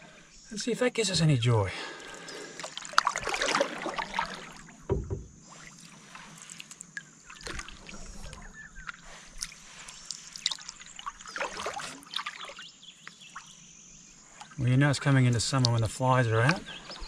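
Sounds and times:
water drips: 0:01.8 - 0:05.2, 0:06.4 - 0:13.6, 0:14.3 - 0:17.0
paddle strokes swishing through water: 0:02.0 - 0:13.5, 0:15.6 - 0:17.0.

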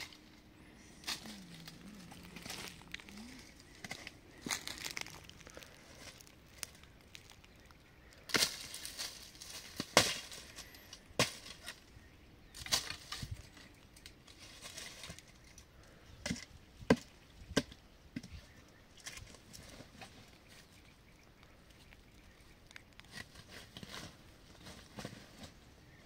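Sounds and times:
firewood being chopped: 0:08.2 - 0:10.6, 0:11.2 - 0:11.8, 0:16.2 - 0:18.3.

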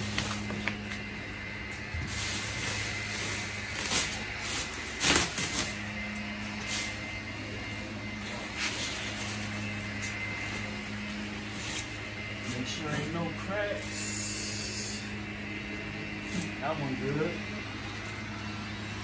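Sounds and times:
plastic wrapping rustling: 0:00.0 - 0:01.1, 0:02.0 - 0:05.9
steady low hum: 0:00.0 - 0:19.0.

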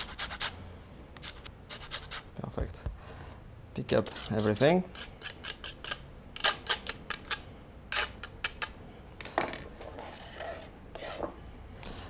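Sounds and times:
metal grater scraping: 0:04.0 - 0:08.7.

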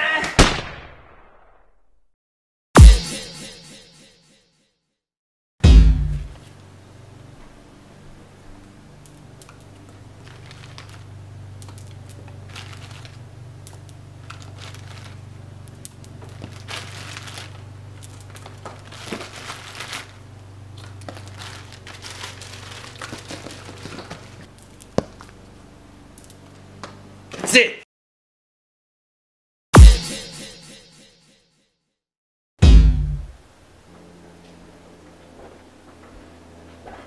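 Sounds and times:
steady low hum: 0:05.6 - 0:27.3, 0:32.6 - 0:37.0
rustling handling noise: 0:09.2 - 0:25.5.

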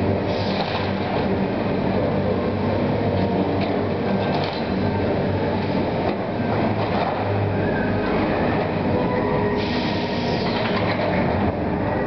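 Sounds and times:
diesel excavators running: 0:00.0 - 0:12.0.

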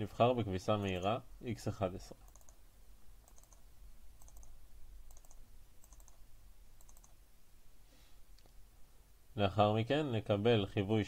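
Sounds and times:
computer mouse clicks: 0:02.2 - 0:02.6, 0:03.2 - 0:06.2, 0:06.8 - 0:07.2.

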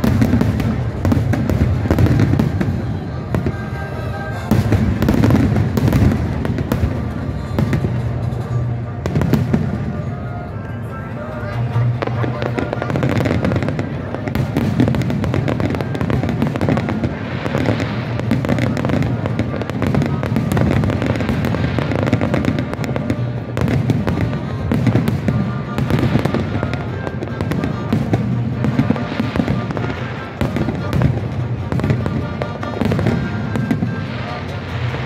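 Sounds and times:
fireworks bangs and crackling: 0:00.0 - 0:35.0
music playing: 0:00.1 - 0:35.0.

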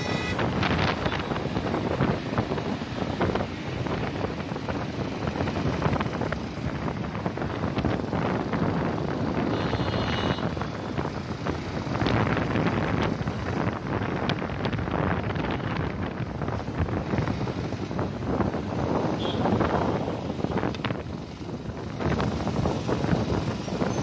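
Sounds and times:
brief high-pitched tone: 0:00.0 - 0:00.4
wind buffeting microphone: 0:00.0 - 0:09.6, 0:10.4 - 0:24.0
road traffic rushing: 0:00.0 - 0:24.0.

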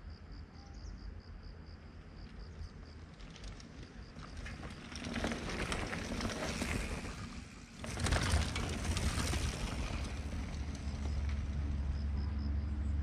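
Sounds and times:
bike tyres crunching on dirt: 0:02.6 - 0:11.9
rapid bike clicking: 0:02.9 - 0:11.8.

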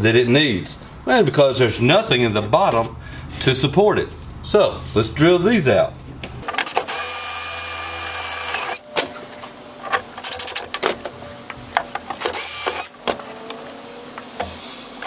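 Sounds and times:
cordless drill drilling plastic: 0:06.7 - 0:08.8, 0:12.2 - 0:12.9.

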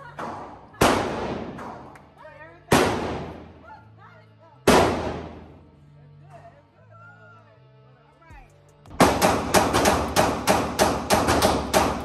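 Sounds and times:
pistol gunshots with echo: 0:02.7 - 0:03.5, 0:09.0 - 0:12.0.

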